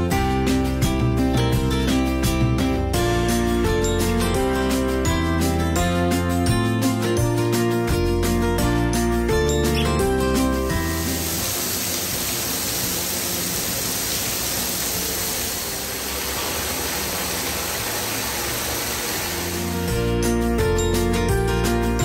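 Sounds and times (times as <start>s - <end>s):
water pouring into bathtub: 10.5s - 20.0s.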